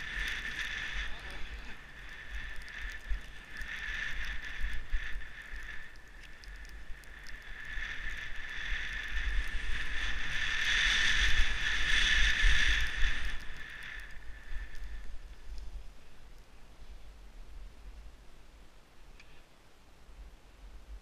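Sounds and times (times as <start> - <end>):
skis hissing over snow: 0.0 - 5.8, 7.0 - 16.2
wind rumbling on microphone: 0.0 - 19.2.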